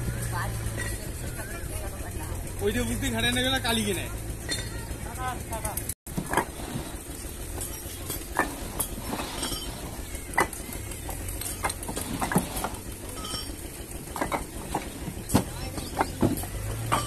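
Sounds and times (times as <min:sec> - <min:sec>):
steady low hum: 0:00.0 - 0:17.0
bricks knocking and clinking: 0:06.1 - 0:17.0.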